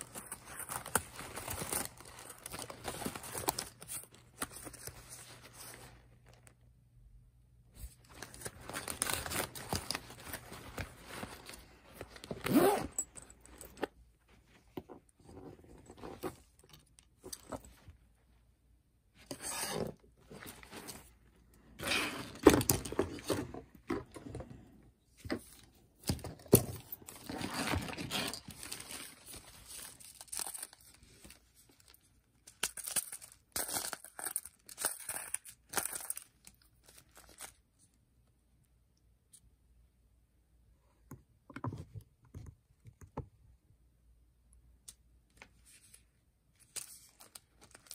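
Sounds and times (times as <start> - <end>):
plastic packaging crinkling: 0.0 - 6.6, 8.0 - 13.7, 27.0 - 37.6, 46.6 - 47.9.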